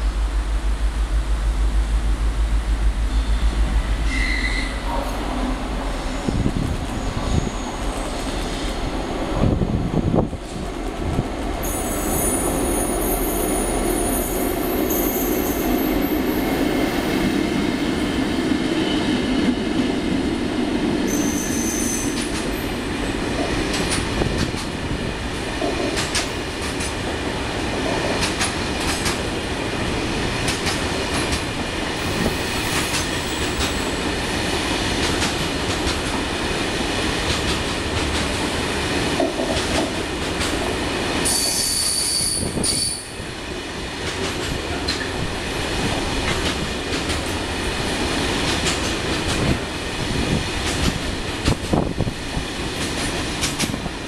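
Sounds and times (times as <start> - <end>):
high-pitched wheel squeals: 3.1 - 4.9, 21.1 - 22.2
train wheels clattering over rail joints: 25.6 - 27.0, 28.0 - 29.3, 30.4 - 31.6, 37.2 - 40.7, 46.2 - 54.0.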